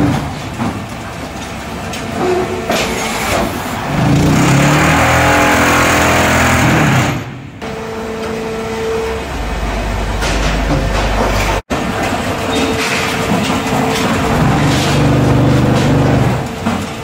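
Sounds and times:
machine vibrating clatter: 10.2s - 17.0s.

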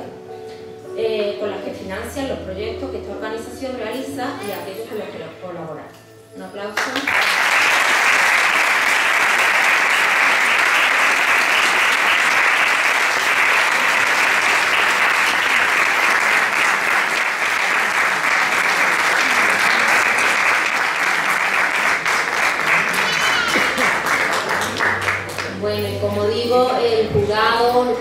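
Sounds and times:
audience applause: 7.0s - 25.6s.

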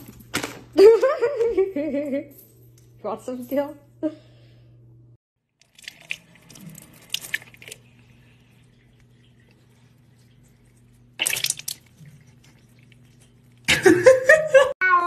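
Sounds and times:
faint steady hum: 3.7s - 14.7s
water dripping and splashing: 5.5s - 13.7s
cat drinking: 5.6s - 13.7s.

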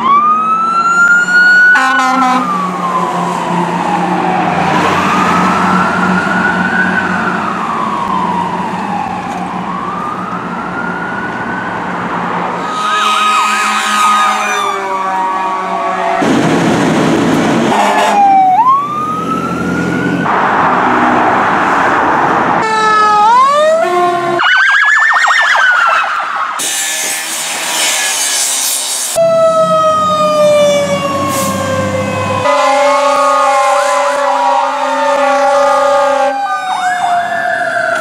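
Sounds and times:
fire truck siren wailing: 0.0s - 38.0s
fire truck horn blasts: 1.7s - 2.7s, 12.6s - 16.4s, 17.6s - 18.5s, 22.6s - 24.4s, 32.3s - 36.5s.

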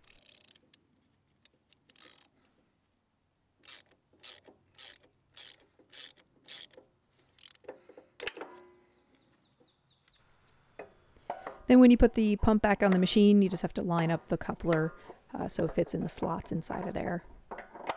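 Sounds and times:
sharp metal clicks: 0.0s - 2.4s, 3.6s - 8.6s
faint ratchet clicks: 0.0s - 2.6s, 3.6s - 8.3s.

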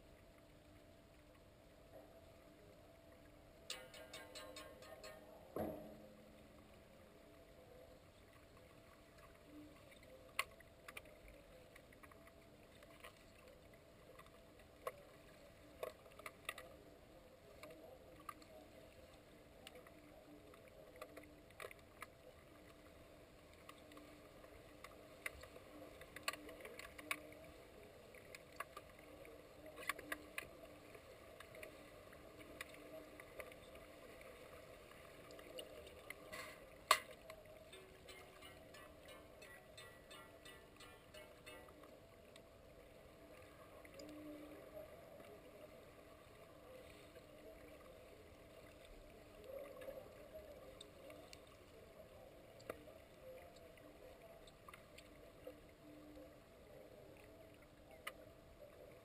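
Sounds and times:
faint underwater hum: 0.0s - 59.0s
underwater clicks and knocks: 3.7s - 6.9s.

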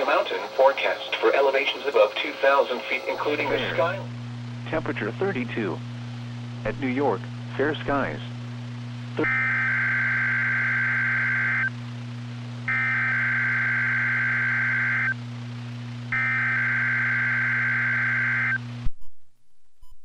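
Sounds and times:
steady low hum: 0.0s - 20.0s
warbling digital data tone: 12.7s - 15.2s.

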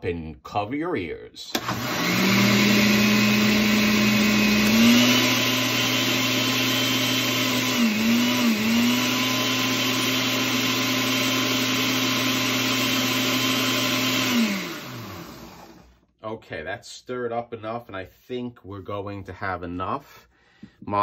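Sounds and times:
blender motor running: 1.6s - 16.0s.

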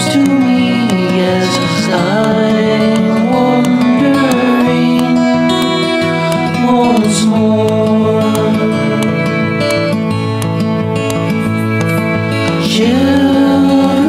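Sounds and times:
person singing long notes: 0.0s - 10.0s, 12.3s - 14.0s
acoustic guitar accompaniment: 0.0s - 14.0s.

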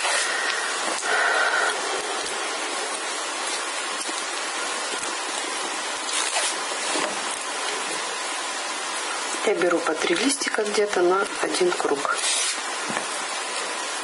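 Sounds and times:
steady background hiss: 0.0s - 14.0s
crackles of tape being handled: 2.2s - 8.0s, 12.2s - 13.2s.

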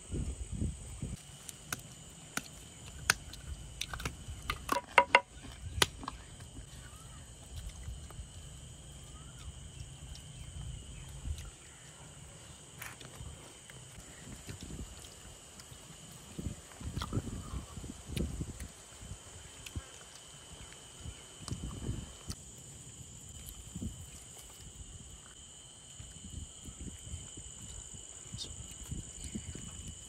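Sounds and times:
crickets trilling: 0.0s - 30.0s.

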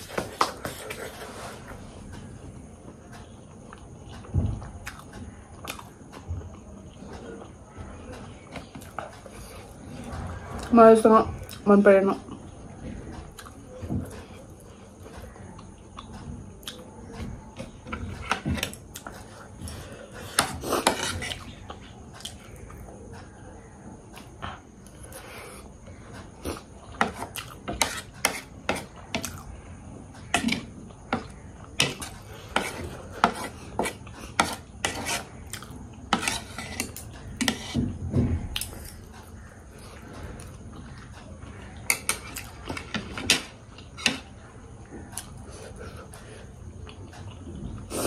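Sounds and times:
utensils clinking against a dish: 30.3s - 37.8s, 41.8s - 44.3s.

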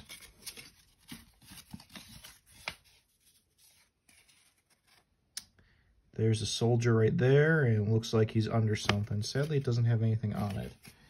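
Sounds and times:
paper rustling and scraping on wood: 0.0s - 5.1s, 10.3s - 11.0s.

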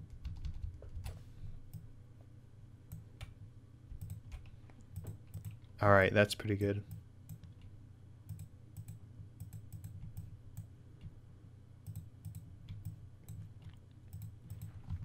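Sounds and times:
low steady hum: 0.0s - 15.0s
mouse and keyboard clicking: 4.0s - 5.6s.

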